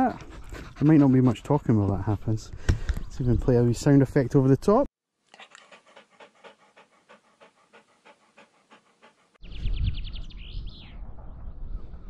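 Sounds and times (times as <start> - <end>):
dog panting: 0.0 - 2.3, 5.3 - 9.4
wind rumble on microphone: 9.4 - 12.0.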